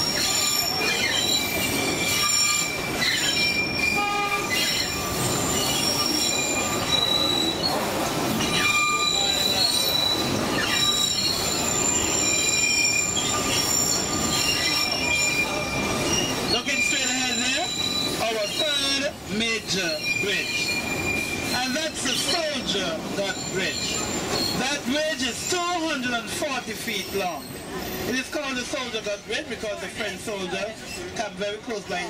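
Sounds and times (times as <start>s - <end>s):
train cars rumbling and rattling: 0.0s - 32.0s
train wheels squealing: 0.0s - 32.0s.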